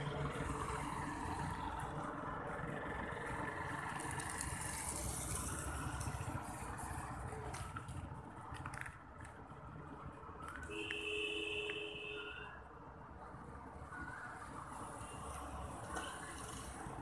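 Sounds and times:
low rumble of engines: 0.0 - 17.0.

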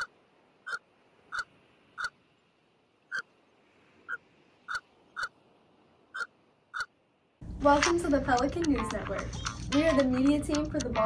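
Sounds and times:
short sharp animal calls: 0.0 - 2.2, 3.1 - 3.3, 6.1 - 7.0.

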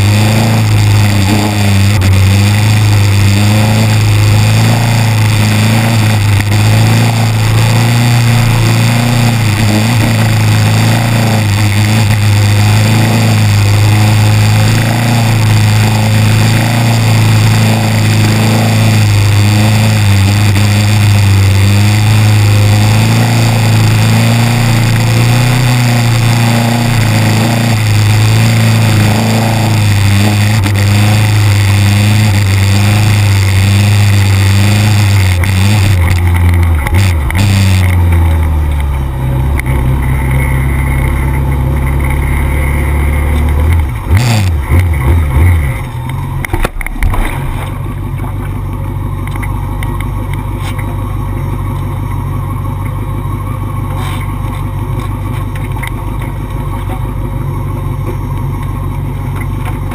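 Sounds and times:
dense rushing noise: 0.0 - 48.5
motorcycle engine running hard: 0.0 - 59.9.

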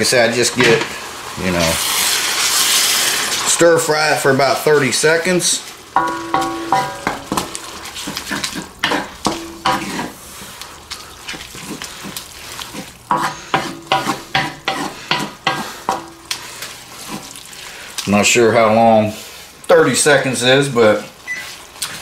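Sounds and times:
noodles sizzling in a wok: 0.0 - 22.0
spatula scraping a wok: 6.0 - 10.6, 11.5 - 17.4.

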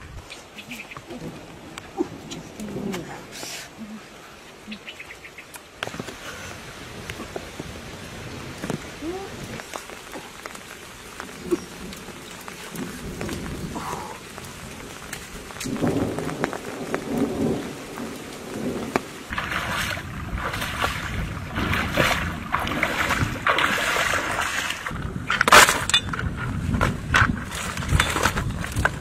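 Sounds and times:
creek water running over rocks: 0.0 - 29.0
stones crunching: 19.0 - 29.0.

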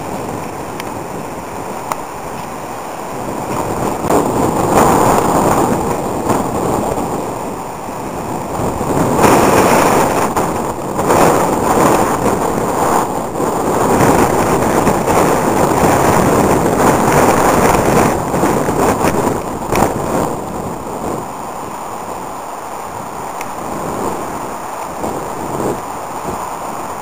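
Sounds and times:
gusty wind on microphone: 0.0 - 27.0.

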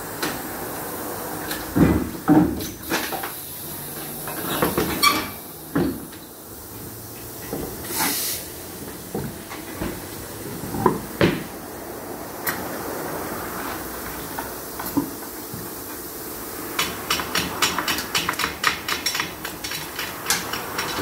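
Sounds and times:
knocks and clanks of tools: 1.5 - 3.4, 4.0 - 6.2, 7.2 - 7.9, 8.8 - 10.0, 10.6 - 11.5, 16.8 - 21.0
hissing air burst: 7.8 - 8.6.

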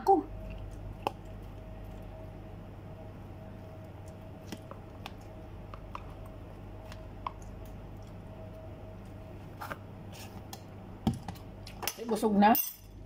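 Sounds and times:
steady low hum: 0.0 - 13.0
person chewing watermelon: 0.3 - 2.4, 3.5 - 9.8.

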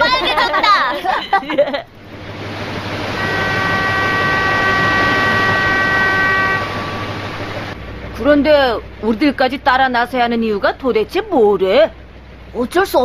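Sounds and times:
boat engine: 0.0 - 13.0
water wash from boat: 2.0 - 7.8
steady high tones: 2.4 - 7.8.

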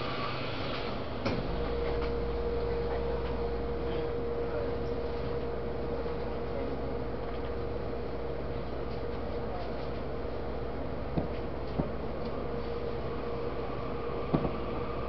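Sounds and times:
mid-pitched equipment whine: 0.0 - 15.0
train low hum: 0.0 - 15.0
thud: 14.3 - 14.6.

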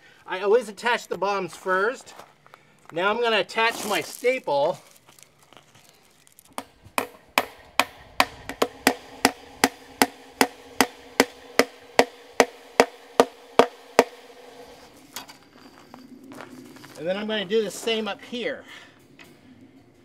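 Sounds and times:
hammer striking fence staples: 6.6 - 14.2
steady ringing tone: 7.2 - 17.0.

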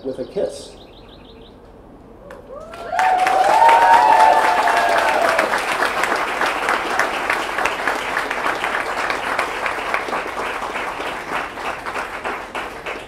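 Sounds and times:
crowd applauding: 2.6 - 13.0.

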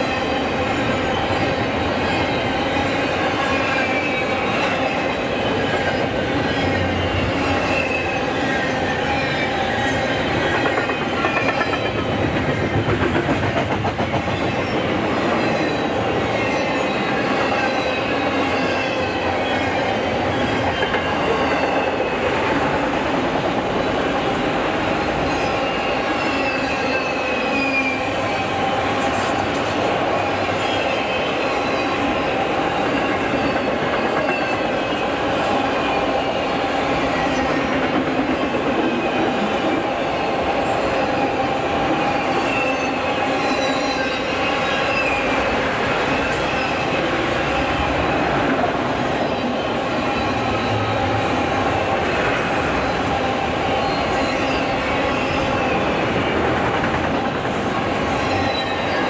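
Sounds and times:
train wheels rumbling on rails: 0.0 - 59.0
wheel squeal: 25.0 - 29.5, 42.2 - 45.4, 58.1 - 59.0.

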